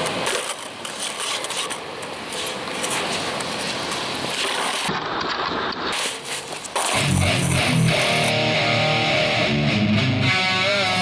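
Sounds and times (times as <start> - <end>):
board scraping on concrete: 0.0 - 8.4
skateboard wheels rolling: 0.0 - 8.5.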